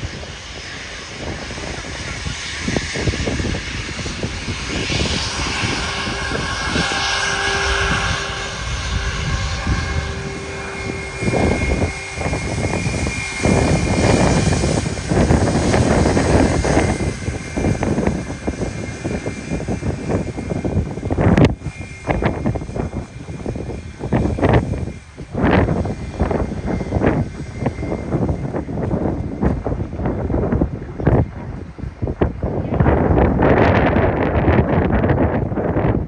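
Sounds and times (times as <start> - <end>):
faint steady engine whine: 0.0 - 36.0
jet engine roar: 0.0 - 36.0.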